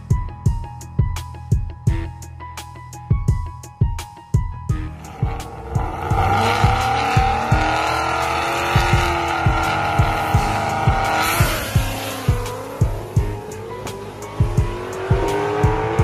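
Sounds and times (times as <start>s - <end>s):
music with kick-drum beat: 0.0s - 16.0s
tire noise: 4.8s - 16.0s
car engines revving: 5.0s - 16.0s.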